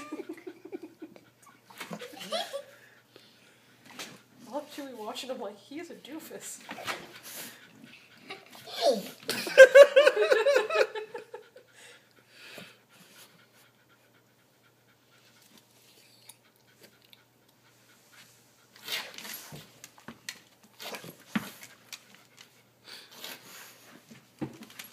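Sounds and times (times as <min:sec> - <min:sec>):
dog sniffing noisily: 0:22.8 - 0:24.1.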